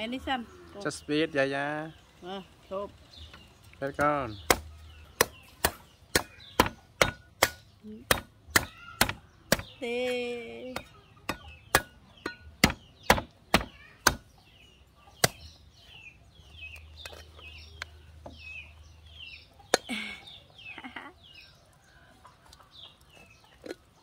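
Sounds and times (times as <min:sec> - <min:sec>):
cleaver chopping coconut: 0:03.9 - 0:09.8, 0:10.7 - 0:14.3, 0:15.2 - 0:15.6.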